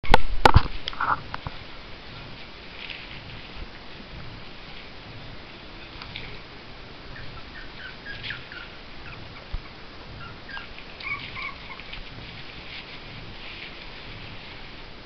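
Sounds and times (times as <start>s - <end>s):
dogs whining and yipping: 7.1s - 12.2s.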